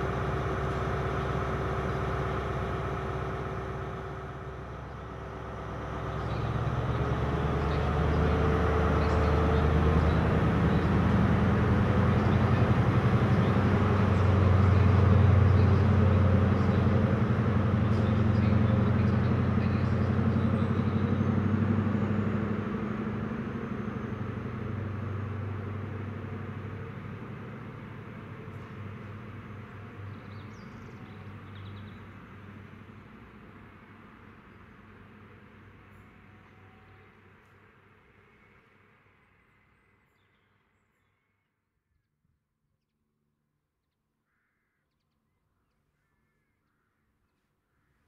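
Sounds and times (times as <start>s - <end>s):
diesel train engine idling: 0.0s - 39.4s
diesel train engine running loud: 0.0s - 39.4s.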